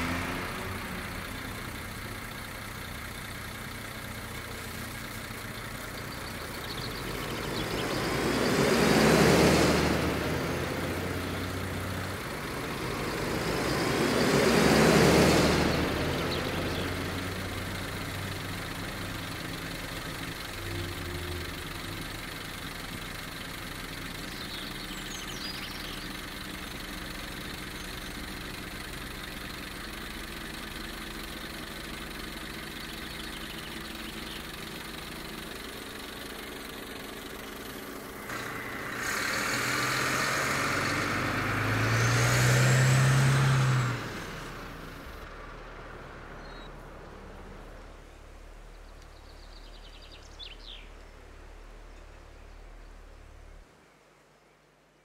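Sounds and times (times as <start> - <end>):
vehicle passing: 0.0 - 3.4, 5.6 - 48.5
engine idling: 0.0 - 53.7.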